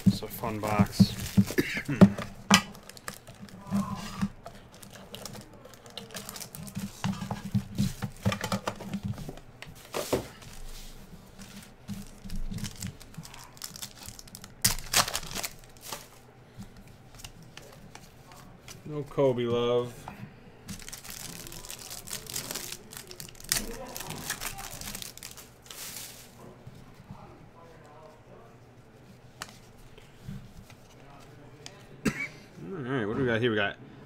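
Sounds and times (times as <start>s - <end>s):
plastic wrapping crinkling: 0.0s - 16.2s, 20.7s - 26.5s.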